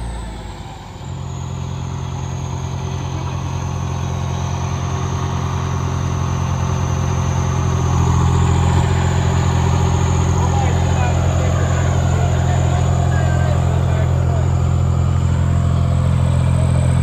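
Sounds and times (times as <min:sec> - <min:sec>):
diesel tractor engine running: 0:00.0 - 0:17.0.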